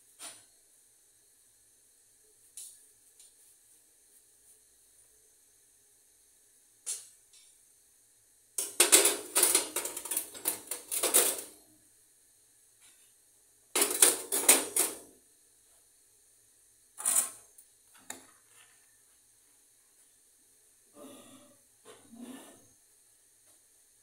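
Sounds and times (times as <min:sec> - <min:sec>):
metal pan grates clanking and scraping: 0:08.6 - 0:11.6, 0:13.8 - 0:15.1.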